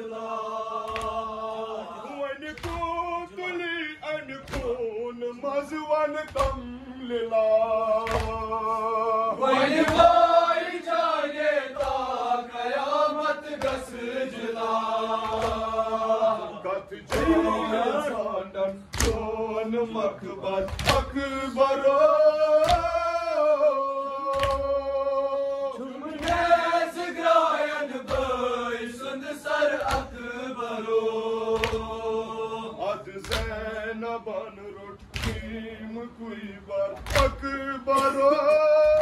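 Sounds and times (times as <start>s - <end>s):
men chanting a lament: 0.0s - 39.0s.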